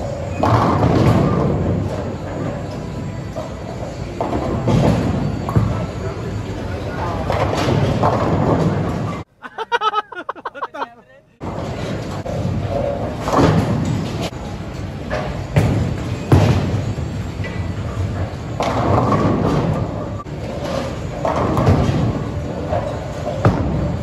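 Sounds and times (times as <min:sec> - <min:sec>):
bowling balls thudding on lanes: 0:00.2 - 0:02.7, 0:07.1 - 0:09.2, 0:11.4 - 0:14.3, 0:15.1 - 0:24.0.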